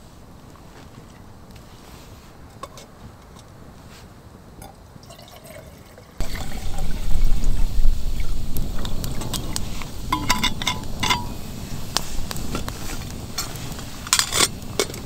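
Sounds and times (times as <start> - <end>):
water splashing: 5.0 - 12.3.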